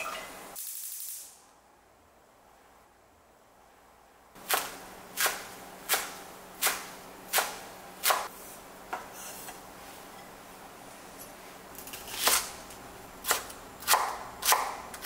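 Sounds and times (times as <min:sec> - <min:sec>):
knife chopping on wooden board: 0:13.2 - 0:15.0.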